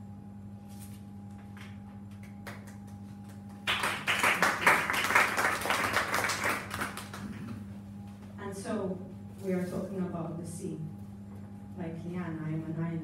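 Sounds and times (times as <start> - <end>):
steady low hum: 0.0 - 13.0
audience applauding: 2.4 - 7.5.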